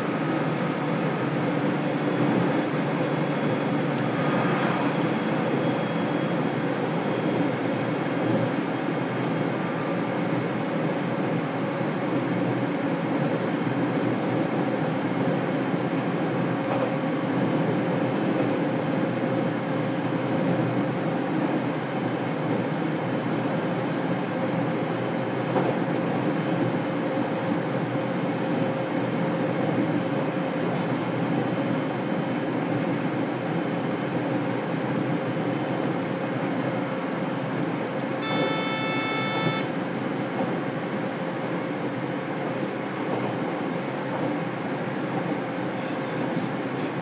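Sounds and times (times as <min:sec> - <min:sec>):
constant hum: 0:34.1 - 0:44.5
short high tone: 0:38.2 - 0:39.7.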